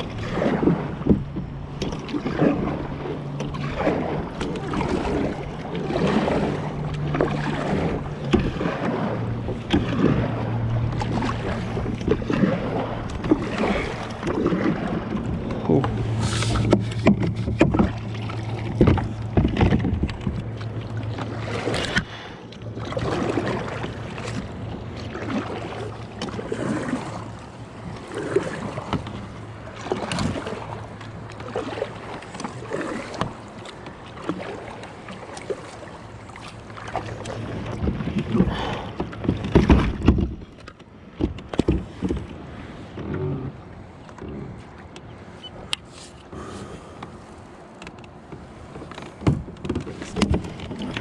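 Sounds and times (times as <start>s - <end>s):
water lapping against kayak: 0.0s - 51.0s.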